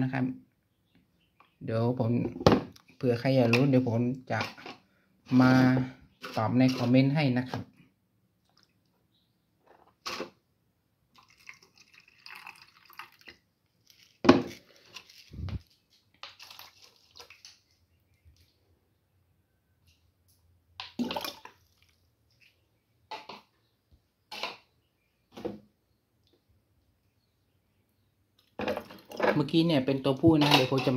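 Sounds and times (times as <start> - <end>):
water splashing and dripping: 11.2 - 14.0, 16.2 - 17.8, 20.8 - 22.6.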